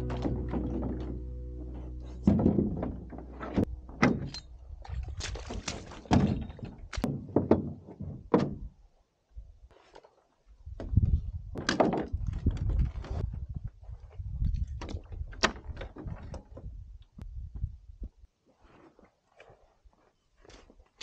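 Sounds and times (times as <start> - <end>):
rustling and scuffing: 18.4 - 21.0.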